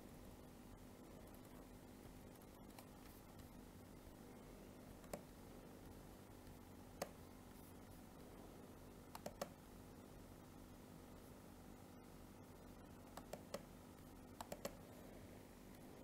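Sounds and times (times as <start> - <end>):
faint steady hum: 0.0 - 16.0
computer mouse clicks: 1.3 - 3.5, 5.0 - 5.4, 6.4 - 7.2, 9.1 - 9.6, 13.1 - 14.8.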